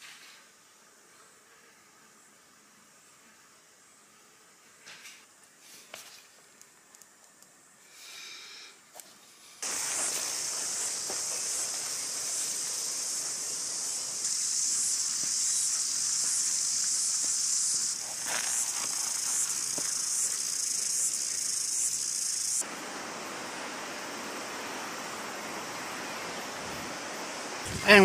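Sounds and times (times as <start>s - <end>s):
cicadas buzzing: 5.8s - 28.0s
river rushing: 22.6s - 28.0s.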